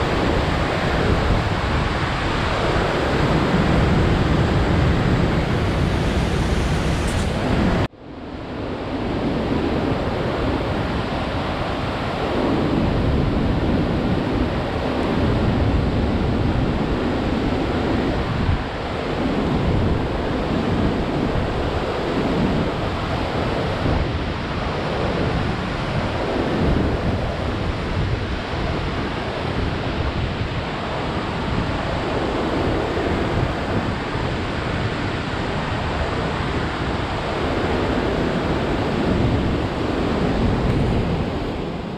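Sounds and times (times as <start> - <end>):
waterfall and rapids roaring: 0.0 - 41.9
low rumbling swells: 2.6 - 7.9.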